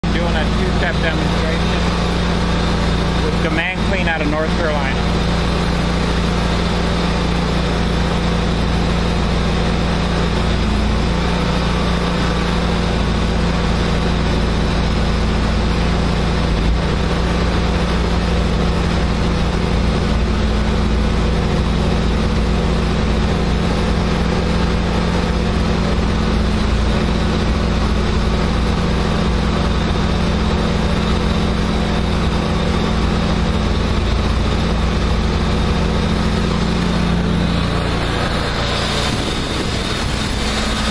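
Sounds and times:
gas engine running: 0.0 - 40.9
high-pressure water spray hiss: 38.8 - 40.9.

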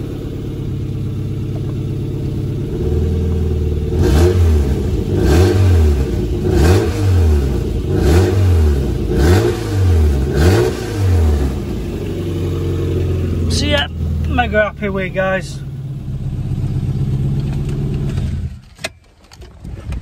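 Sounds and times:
car engine idling and revving: 0.0 - 20.0.

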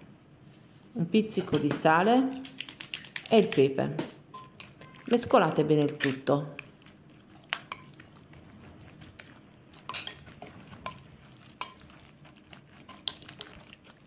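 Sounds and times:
spoon stirring thick filling: 4.3 - 14.0.

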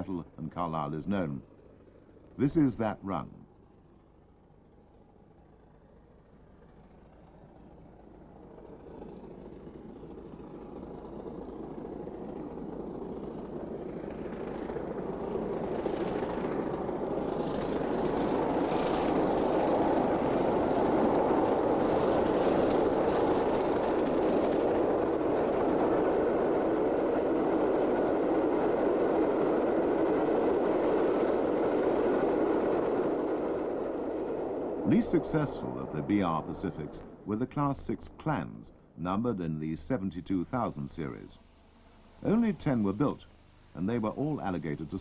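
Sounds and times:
coaches rolling by: 0.0 - 45.0
steam locomotive working hard: 10.3 - 38.3.

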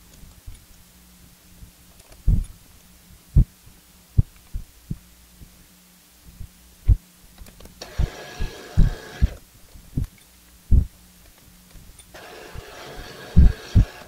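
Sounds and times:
faint steady hum: 0.0 - 14.0
brief scratchy hiss: 12.1 - 14.0.

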